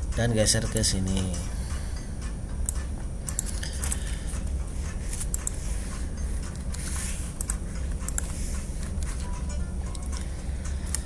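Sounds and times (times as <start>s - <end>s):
steady low hum: 0.0s - 11.0s
computer mouse buttons clicking: 2.6s - 11.0s.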